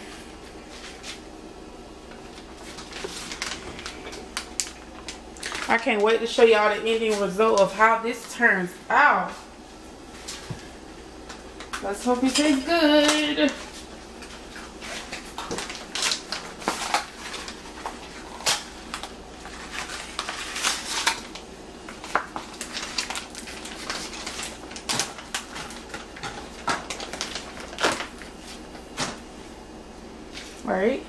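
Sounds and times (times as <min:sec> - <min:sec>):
packaging crinkling: 0:02.1 - 0:06.1, 0:12.4 - 0:29.2.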